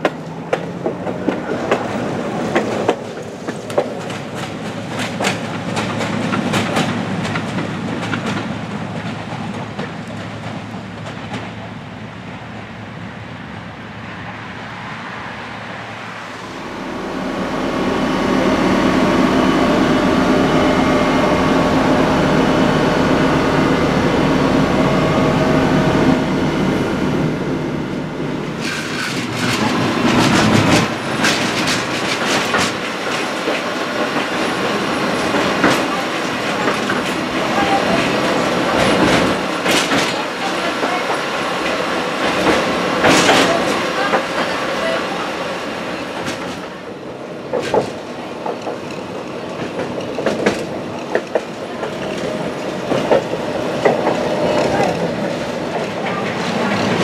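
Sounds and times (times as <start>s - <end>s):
tram body rattling: 0.0s - 12.7s, 28.0s - 57.0s
tram running past: 0.0s - 57.0s
wheels clattering over rail joints: 28.6s - 45.0s.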